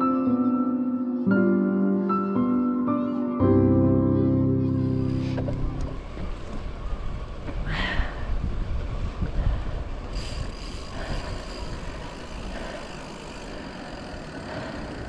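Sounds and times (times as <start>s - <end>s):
road traffic passing: 4.4s - 15.0s
bicycle tyre noise: 4.9s - 15.0s
wind rumbling on microphone: 5.1s - 15.0s.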